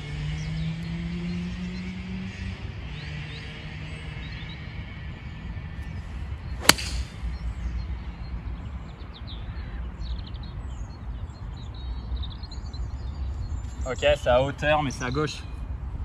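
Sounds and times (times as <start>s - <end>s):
golf club striking ball: 6.6s - 7.4s.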